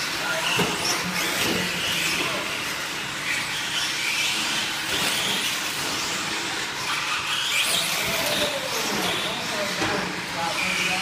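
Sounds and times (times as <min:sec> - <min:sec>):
rc truck motor whine: 0:00.0 - 0:11.0.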